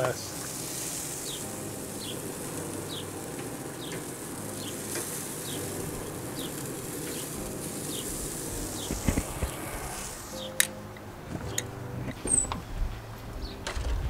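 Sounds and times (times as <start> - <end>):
chicken sizzling on grill: 0.0 - 10.7.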